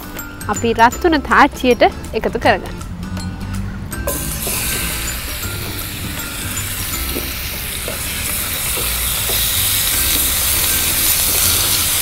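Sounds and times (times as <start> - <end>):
chicken sizzling in hot oil: 4.1 - 12.0.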